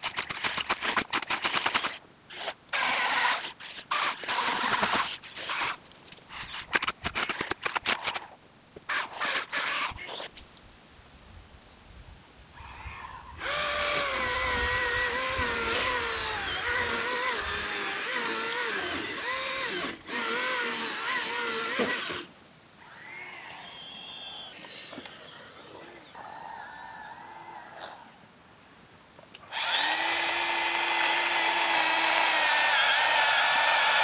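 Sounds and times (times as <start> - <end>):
electric cutting tool whine: 29.5 - 34.0.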